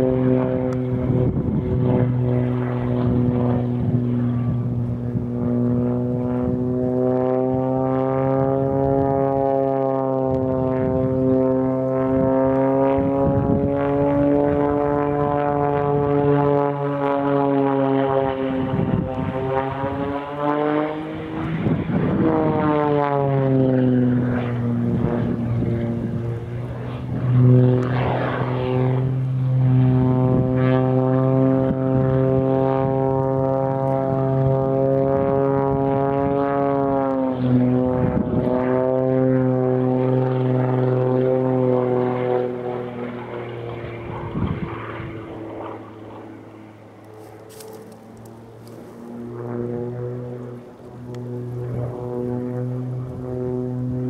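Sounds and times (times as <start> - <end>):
aerobatic plane engine: 0.0 - 54.0.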